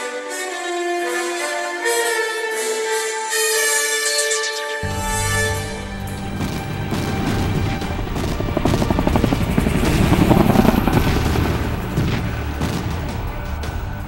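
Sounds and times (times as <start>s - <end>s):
background music: 0.0s - 14.0s
helicopter rotor chop: 5.2s - 14.0s.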